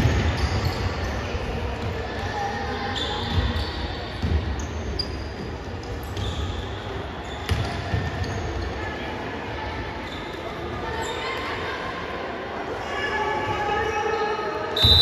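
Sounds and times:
sneakers squeaking on floor: 0:00.0 - 0:08.9, 0:10.0 - 0:11.3
basketball bouncing on court: 0:04.2 - 0:04.6, 0:07.5 - 0:08.3.

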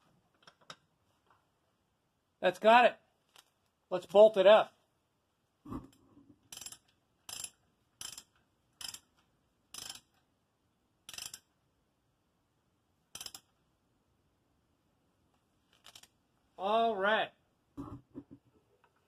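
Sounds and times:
ratchet wrench clicking: 0:06.5 - 0:10.2, 0:11.1 - 0:11.5, 0:13.1 - 0:13.6, 0:15.8 - 0:16.1.

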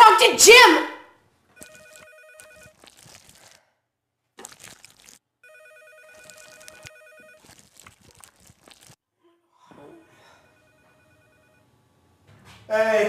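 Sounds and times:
telephone ringing electronic trill: 0:01.6 - 0:02.8, 0:05.4 - 0:07.8.

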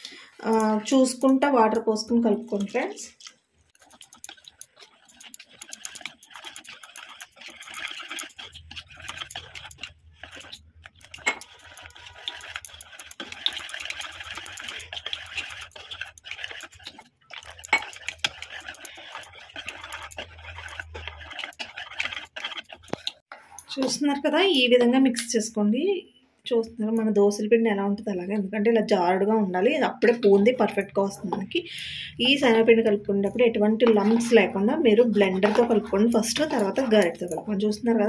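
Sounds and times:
whisk scraping against bowl: 0:00.4 - 0:24.7, 0:32.3 - 0:38.0.

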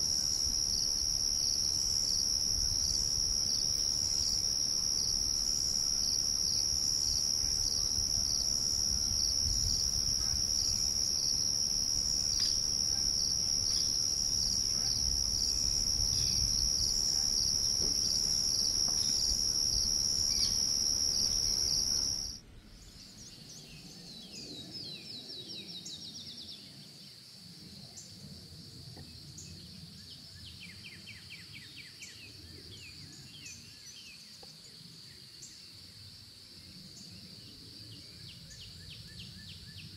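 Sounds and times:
high-pitched insect trill: 0:00.0 - 0:22.4.

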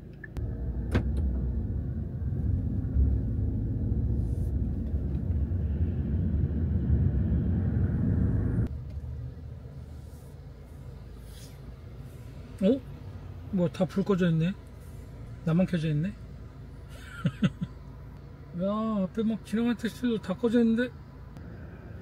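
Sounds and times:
road and tyre rumble: 0:00.0 - 0:22.0.

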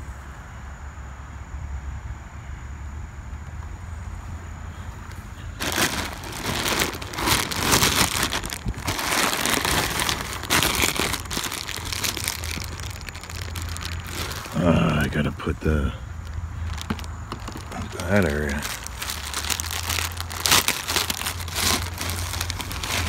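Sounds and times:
plastic bag crinkling: 0:05.6 - 0:23.0
wind rumble on microphone: 0:07.5 - 0:14.4.

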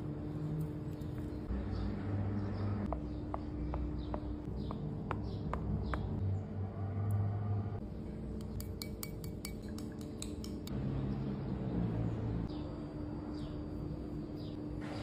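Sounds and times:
fork ticking on metal tray: 0:08.4 - 0:10.7
spoon clinking against ceramic bowl: 0:08.5 - 0:10.7.

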